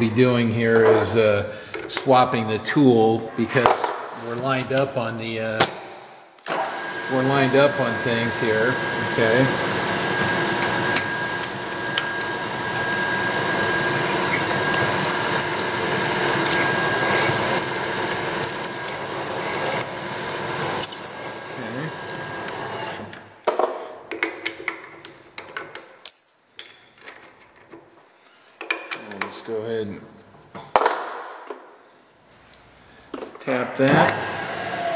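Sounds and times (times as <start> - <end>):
machine spindle drilling whine: 6.5 - 23.1
metallic clicks and clinks: 25.7 - 27.4
short metallic ring: 26.0 - 26.6.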